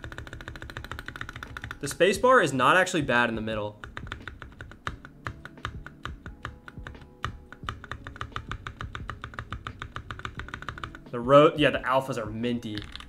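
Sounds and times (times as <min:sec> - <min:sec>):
mechanical keyboard typing: 0:00.0 - 0:01.9, 0:03.7 - 0:11.1, 0:12.7 - 0:13.0.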